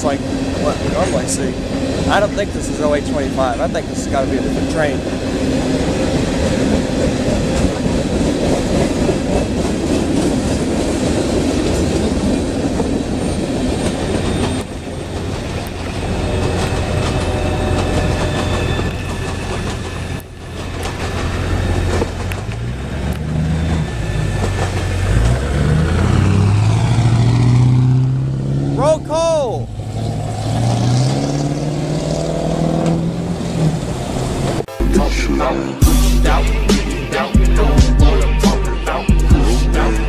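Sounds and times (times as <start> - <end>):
train wheels rumbling on rails: 0.0 - 27.7
road vehicle engines: 0.0 - 40.0.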